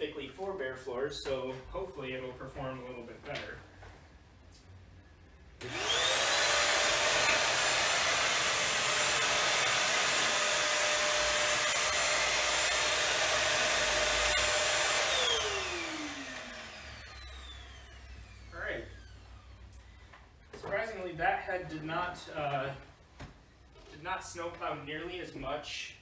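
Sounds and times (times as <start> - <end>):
stick vacuum motor whining: 5.6 - 19.9.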